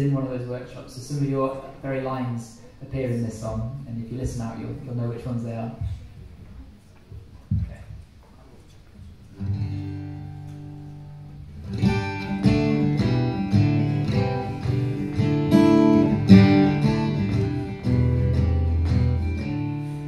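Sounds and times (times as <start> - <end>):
acoustic guitar strumming: 9.4 - 20.0.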